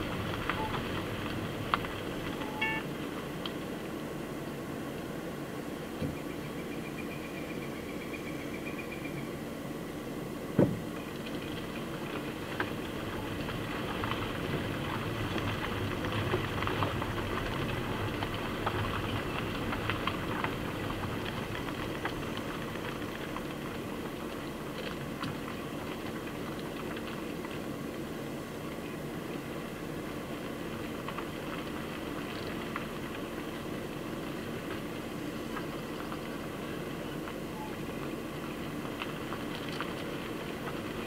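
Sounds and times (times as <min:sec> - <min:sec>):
vehicle engine idling: 0:10.8 - 0:41.0.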